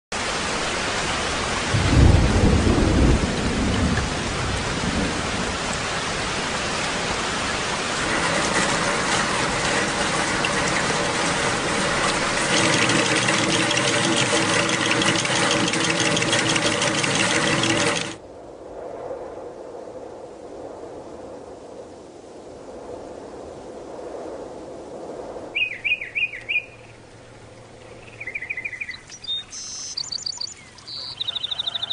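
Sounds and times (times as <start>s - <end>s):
heavy rain falling: 0.2s - 18.2s
thunder rumbling: 1.6s - 19.8s
steady tones: 7.9s - 18.2s.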